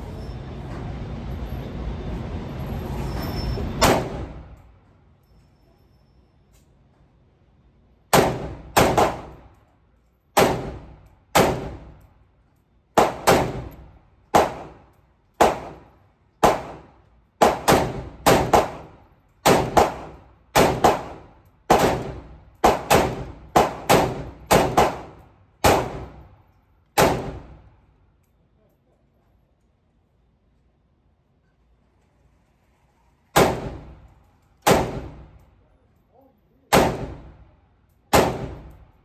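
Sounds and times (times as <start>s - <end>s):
rifle shots echoing indoors: 8.1s - 9.6s, 10.3s - 12.1s, 13.0s - 27.8s, 33.4s - 35.5s, 36.7s - 39.0s.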